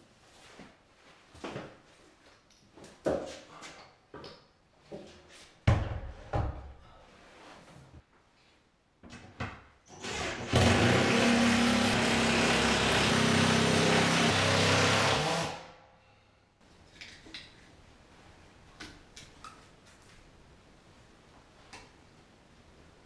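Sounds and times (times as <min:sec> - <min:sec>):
cordless drill running: 0:09.9 - 0:15.6.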